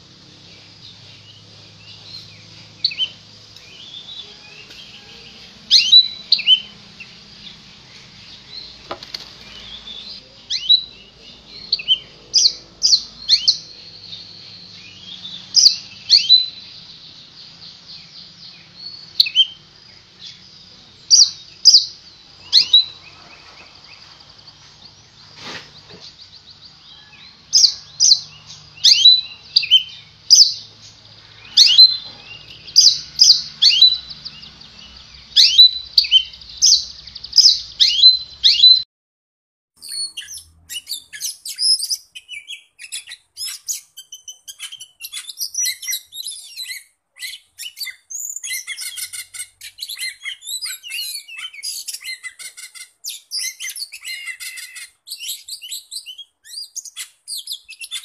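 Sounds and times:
steady high hiss: 0.0 - 27.0
bird scratchy chatter: 0.6 - 13.7, 21.2 - 35.4, 48.2 - 55.0.

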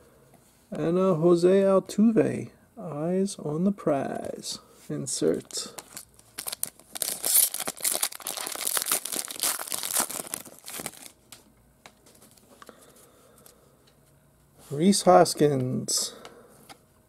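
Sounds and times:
foil wrapper tearing and crinkling: 5.8 - 11.2.

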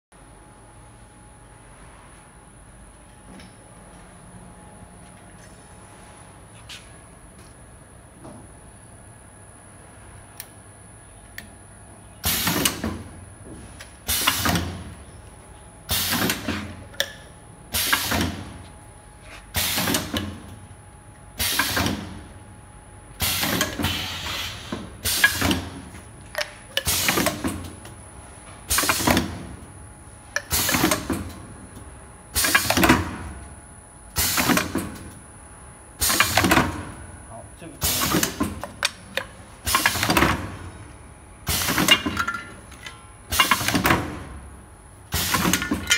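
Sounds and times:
pneumatic burst and hiss: 12.2 - 12.8, 14.0 - 14.8, 15.9 - 16.7, 17.7 - 18.5, 19.3 - 20.1, 21.4 - 22.1, 23.2 - 25.7, 28.7 - 29.2, 30.4 - 31.1, 32.3 - 32.8, 34.2 - 34.6, 36.0 - 36.4, 39.6 - 40.2, 45.1 - 45.7.

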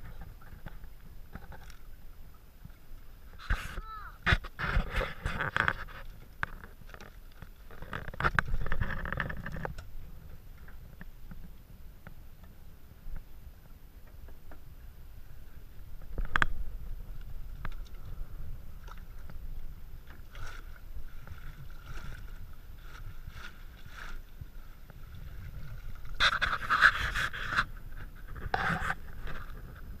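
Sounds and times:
water sloshing: 15.4 - 30.0
splashing and rattling: 17.5 - 30.0.

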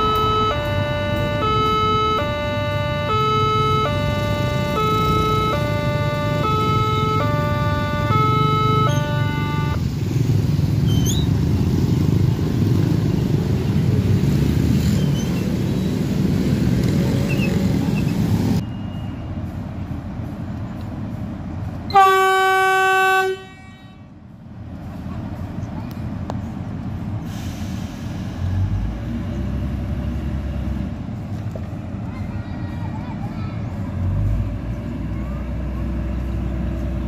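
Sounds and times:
two-tone crossing alarm: 0.0 - 9.8
train horn blast: 0.0 - 9.9, 21.9 - 24.1
motorbikes and cars passing: 0.6 - 19.0.

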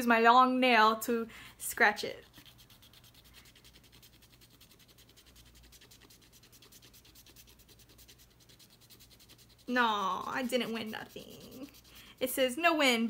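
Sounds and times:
fingernail scratching scratch card: 2.1 - 12.5.

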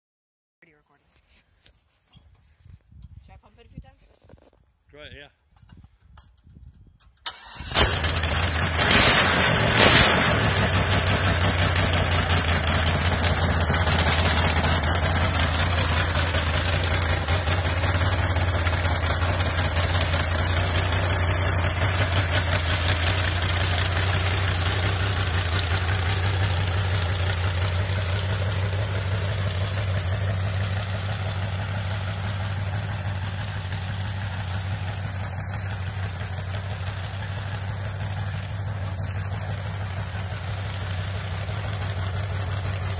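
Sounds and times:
tractor engine running: 5.5 - 42.9.

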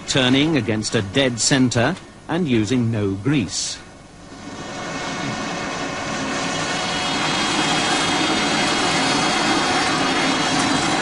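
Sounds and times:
metal lathe running: 4.2 - 11.0.

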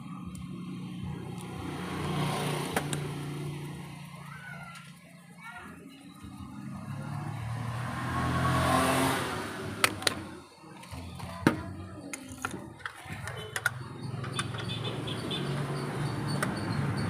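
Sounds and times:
vehicle passing by: 0.6 - 4.9, 6.2 - 11.4
plastic parts clicking and tapping: 9.8 - 14.7.

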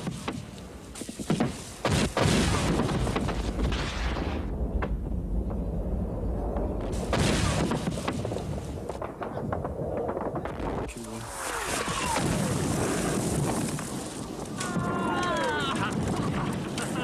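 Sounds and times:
low rumble: 3.2 - 14.9
rocket blast rushing: 6.8 - 8.8, 10.5 - 14.9.

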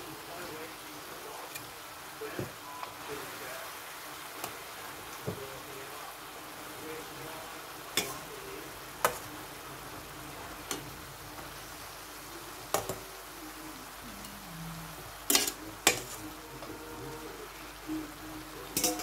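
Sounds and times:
faint frying sizzle: 0.0 - 19.0
metal spoon scraping metal pan: 15.3 - 16.2.

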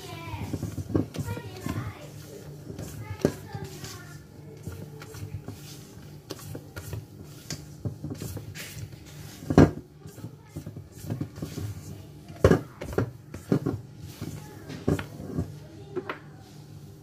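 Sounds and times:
spatula scraping metal bowl: 0.4 - 15.5.

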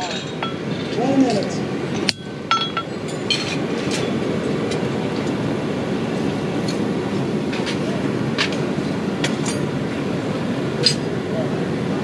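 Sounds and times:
sharp metallic clinks: 0.0 - 1.2, 2.0 - 4.2
steady rushing forge noise: 0.0 - 12.0.

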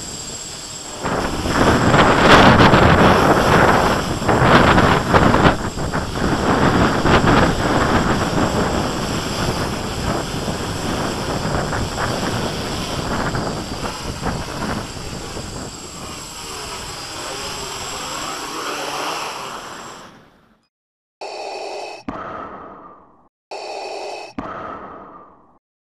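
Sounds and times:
wind buffeting microphone: 0.0 - 18.5
quadcopter propellers buzzing: 0.0 - 20.4.

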